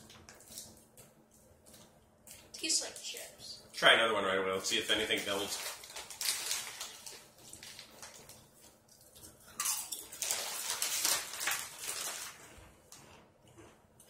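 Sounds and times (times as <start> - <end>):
plastic chip bag crinkling: 4.6 - 13.2.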